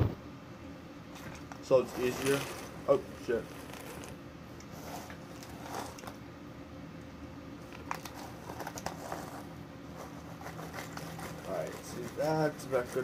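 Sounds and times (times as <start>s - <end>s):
snack bag crinkling: 7.6s - 13.0s.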